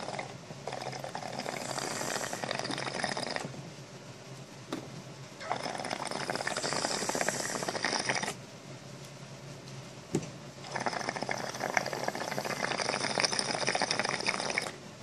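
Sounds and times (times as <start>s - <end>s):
water bubbling in a pipe: 0.0s - 3.5s, 5.4s - 8.4s, 10.6s - 14.8s.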